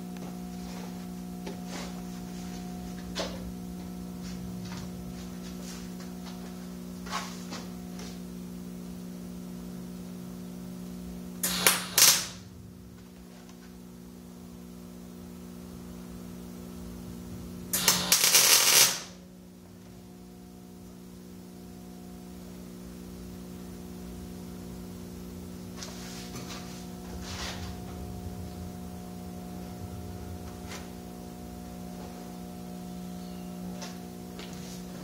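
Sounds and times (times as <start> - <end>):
steady hum: 0.0 - 35.0
welding arc crackling: 11.4 - 12.4, 17.7 - 19.3.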